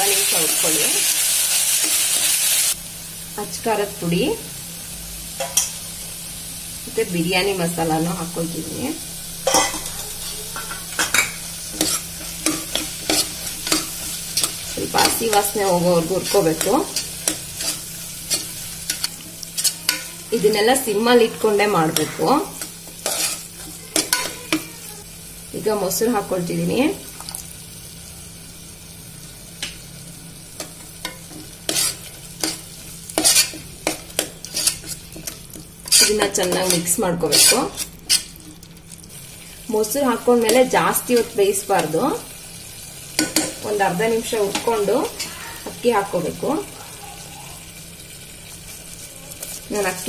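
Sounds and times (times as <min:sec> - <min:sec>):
steady sizzle: 0:00.0 - 0:50.0
spatula scraping a pot: 0:11.2 - 0:15.6, 0:16.2 - 0:20.2, 0:21.2 - 0:24.6, 0:31.0 - 0:32.6, 0:33.2 - 0:38.4.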